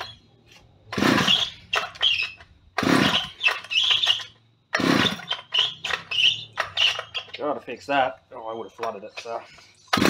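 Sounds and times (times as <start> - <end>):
chainsaw engine turning over: 0.9 - 7.4
chainsaw pull starter: 0.9 - 7.4.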